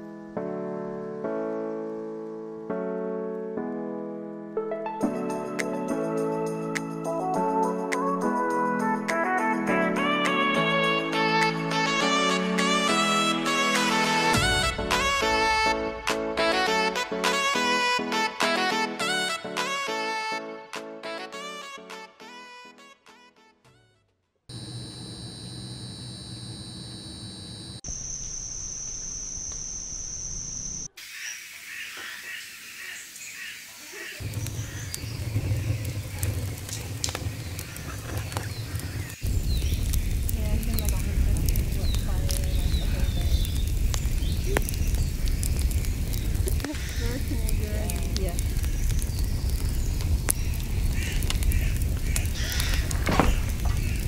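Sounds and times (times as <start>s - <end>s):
low hum: 24.5s - 30.9s
night insects trilling: 24.5s - 54.0s
low rumble: 34.2s - 54.0s
wood fire crackling and popping: 34.2s - 54.0s.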